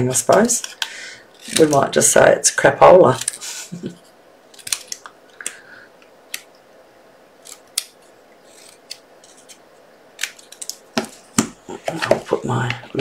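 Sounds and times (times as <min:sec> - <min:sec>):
scissors snipping paper: 0:01.4 - 0:02.0, 0:10.2 - 0:10.8.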